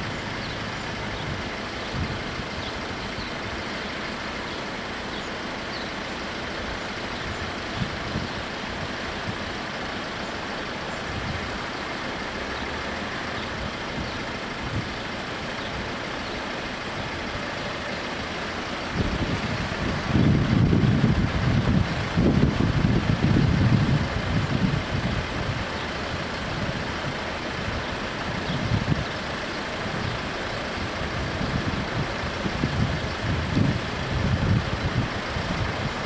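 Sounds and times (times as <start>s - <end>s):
wind buffeting microphone: 0.0s - 3.7s, 6.8s - 9.7s, 10.9s - 11.6s, 18.6s - 36.0s
vehicles idling: 0.0s - 36.0s.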